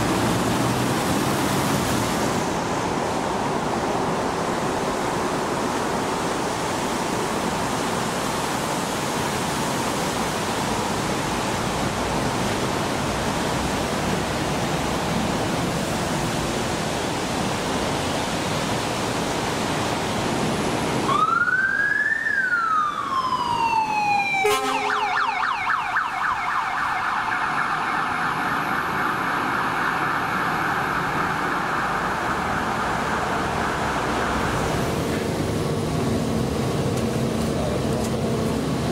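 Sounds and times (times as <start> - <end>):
steady rushing noise: 0.0 - 21.1, 22.4 - 38.9
fire truck siren wailing: 21.0 - 35.9
siren warbling yelp: 21.1 - 34.2
brief low siren tone: 24.3 - 25.8.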